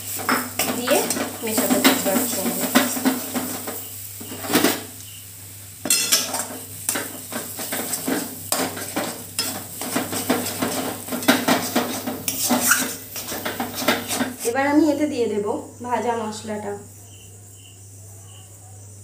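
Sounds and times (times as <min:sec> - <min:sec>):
oil sizzling: 0:00.0 - 0:16.7
spatula scraping metal pan: 0:05.8 - 0:14.6.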